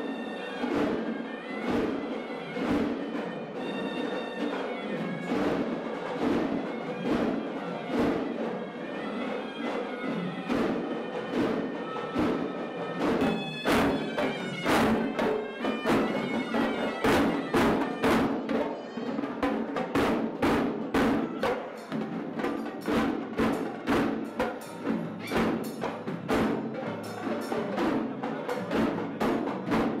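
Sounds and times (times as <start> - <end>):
barrel drums beaten rapidly: 0.0 - 30.0
shrill reed pipe melody: 7.4 - 19.5.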